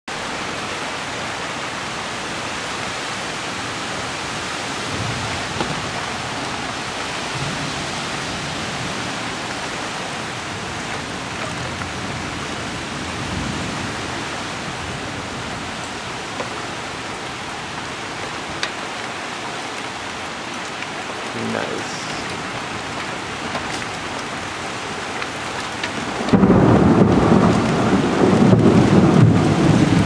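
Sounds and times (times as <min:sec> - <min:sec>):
heavy rain falling: 0:00.1 - 0:30.0.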